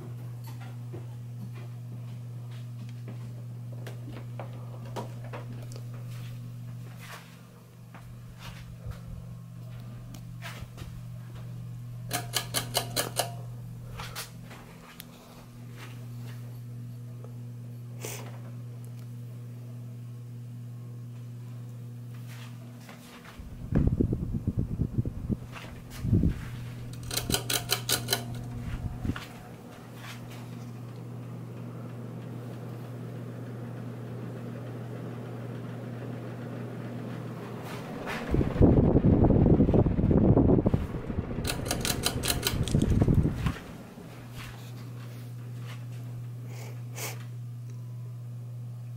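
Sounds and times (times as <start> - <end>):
ceiling fan motor hum: 0.0 - 48.9
sharp ringing clicks: 12.1 - 13.5, 26.9 - 28.6, 41.4 - 42.9
rush of air from fan blades: 23.4 - 30.1, 36.5 - 45.3.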